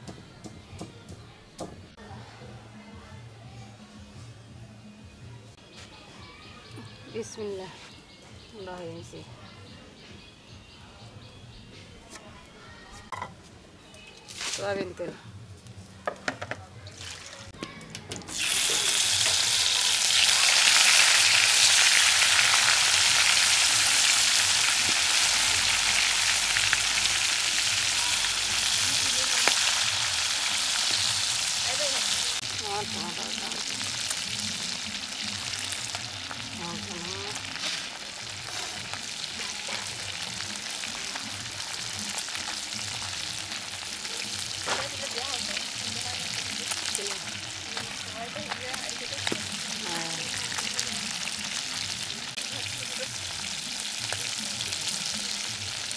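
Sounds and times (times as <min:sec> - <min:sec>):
fish sizzling in hot oil: 0:16.9 - 0:17.5, 0:18.3 - 0:55.9
metal spatula turning food: 0:37.4 - 0:43.6.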